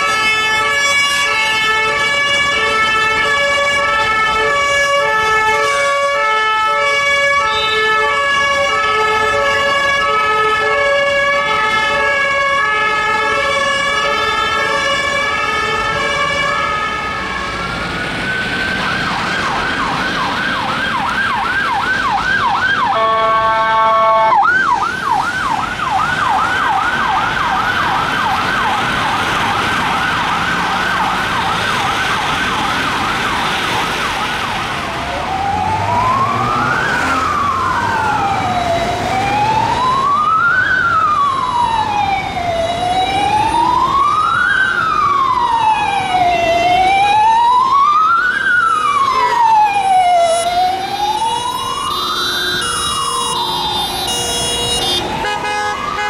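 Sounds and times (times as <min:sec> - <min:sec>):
police siren yelp: 0:00.0 - 0:56.0
two-tone hi-lo sirens: 0:00.0 - 0:56.0
vehicle horn blast: 0:23.0 - 0:24.4, 0:53.9 - 0:56.0.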